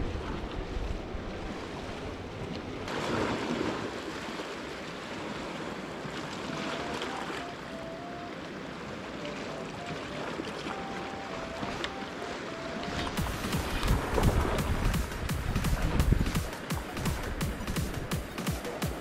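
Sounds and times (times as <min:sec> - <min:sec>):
waves washing against rocks: 0:02.8 - 0:07.5, 0:11.9 - 0:19.0.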